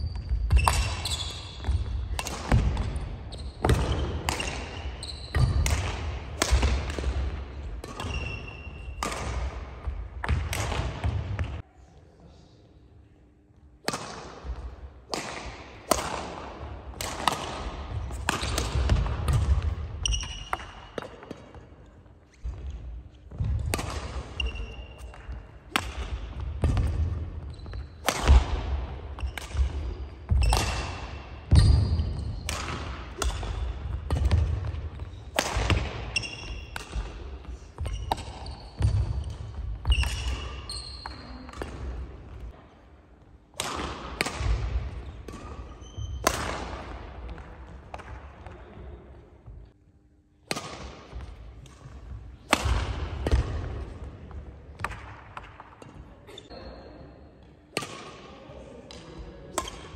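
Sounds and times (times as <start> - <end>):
racket hitting shuttlecock: 0.2 - 11.6, 13.8 - 21.6, 23.3 - 42.4, 43.5 - 48.2, 50.4 - 56.0, 57.7 - 58.3, 58.9 - 59.9
shoes squeaking: 2.9 - 5.6, 45.0 - 46.2.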